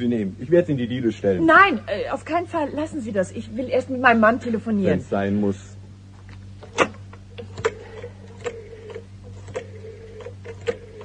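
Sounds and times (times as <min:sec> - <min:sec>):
telephone dial clicks: 0:06.7 - 0:11.0
steady telephone tone: 0:07.3 - 0:11.0.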